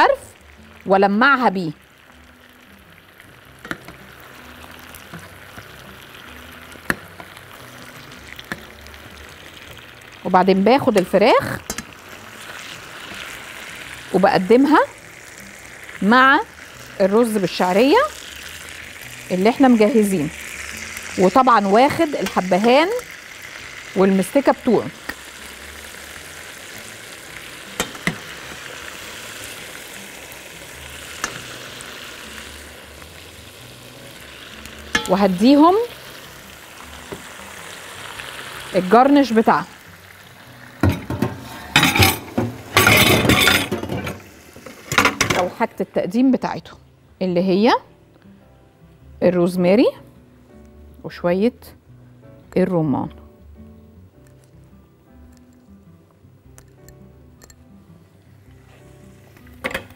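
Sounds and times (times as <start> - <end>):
sauce sizzling and bubbling: 0.0 - 45.8, 57.7 - 59.9
spoon clicking against pan: 11.7 - 11.9, 27.8 - 28.2, 31.2 - 31.4, 34.9 - 35.2
utensils clicking on a platter: 11.7 - 11.9.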